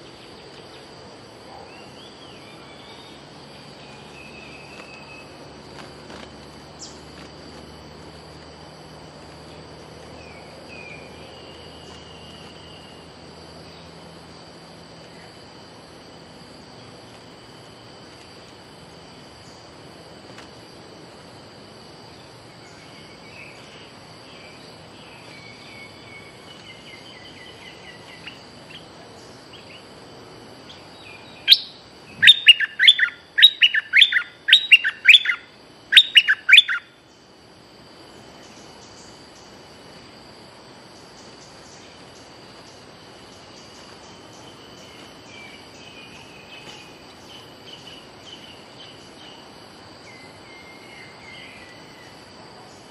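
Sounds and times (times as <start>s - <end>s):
high insect drone: 0.0s - 52.9s
bird whistled song: 30.7s - 36.9s
faint bird calls: 30.7s - 37.2s.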